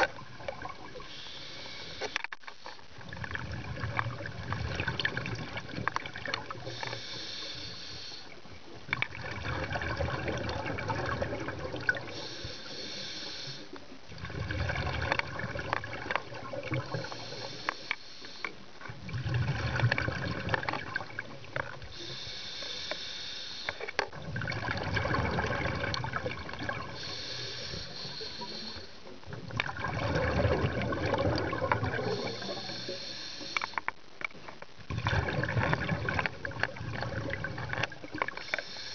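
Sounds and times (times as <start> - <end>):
regulator inhale hiss: 1.0 - 2.8, 6.6 - 8.4, 12.0 - 13.8, 16.8 - 18.6, 21.9 - 24.0, 26.9 - 29.1, 31.9 - 33.9, 38.3 - 38.9
exhaled air bubbling: 2.9 - 17.9, 18.8 - 22.9, 24.0 - 33.8, 34.8 - 38.9.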